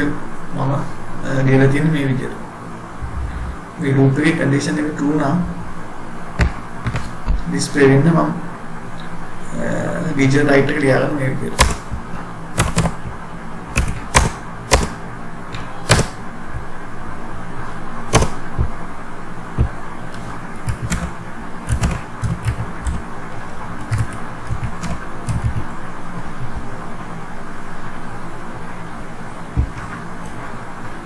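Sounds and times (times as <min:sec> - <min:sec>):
steady background hiss: 0:00.0 - 0:31.0
keyboard keys clicking: 0:20.6 - 0:23.0, 0:23.8 - 0:25.7.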